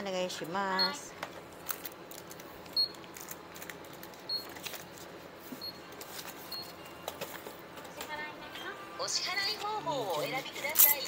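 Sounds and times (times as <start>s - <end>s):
clicks and rustling at counter: 1.2s - 8.1s.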